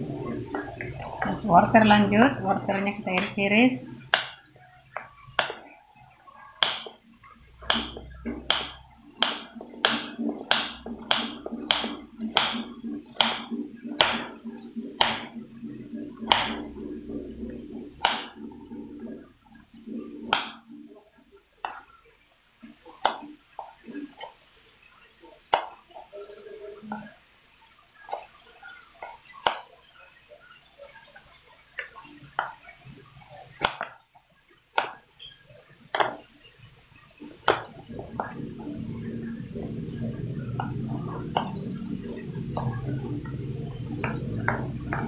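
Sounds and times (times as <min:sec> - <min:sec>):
knife chopping on cutting board: 0:07.6 - 0:12.6, 0:13.2 - 0:15.3, 0:16.3 - 0:16.6.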